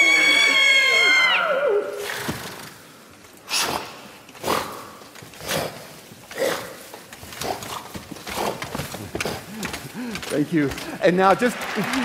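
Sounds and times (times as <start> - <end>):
breathy horse-like huffs: 3.4 - 11.0.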